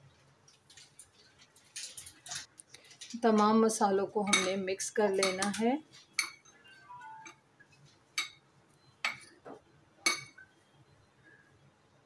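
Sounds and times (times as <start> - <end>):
metal spoon stirring spices: 4.2 - 6.6
spoon clinking against glass: 4.3 - 4.6, 6.2 - 7.4, 10.0 - 10.4.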